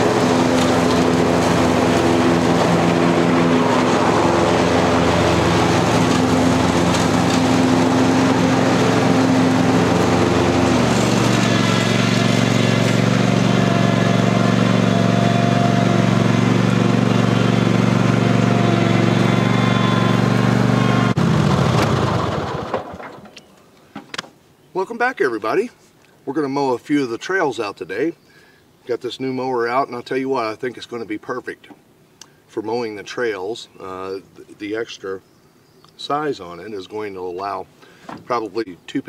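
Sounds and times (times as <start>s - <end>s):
engine winding down: 0.0s - 23.2s
mower engine running: 0.0s - 23.2s.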